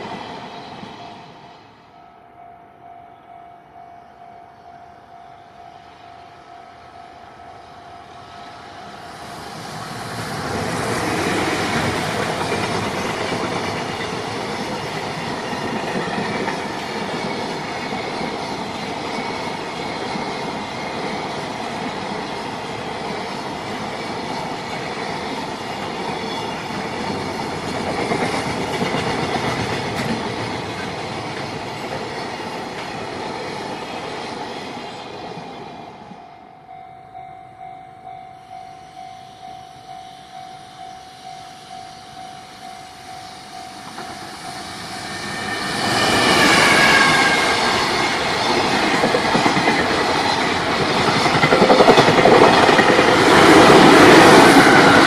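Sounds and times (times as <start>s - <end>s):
freight train passing: 0.0s - 55.0s
level crossing warning bell: 1.9s - 9.8s, 36.2s - 45.8s.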